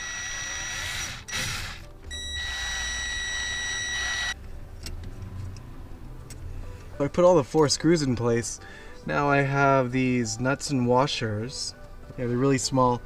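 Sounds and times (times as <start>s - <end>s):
cordless drill whining: 0.0s - 4.4s.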